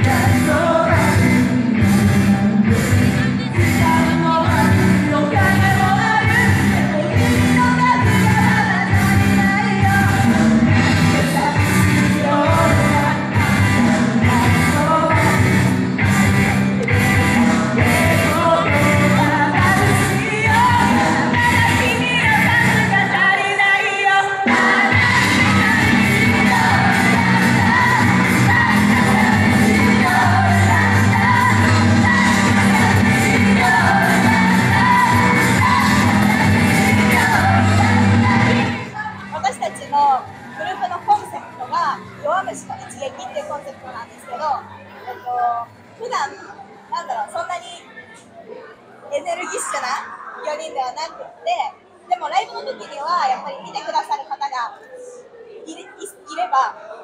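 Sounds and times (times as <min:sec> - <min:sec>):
loud backing music with beat: 0:00.0 - 0:23.8, 0:24.4 - 0:38.9
women singing pop song: 0:00.0 - 0:44.5.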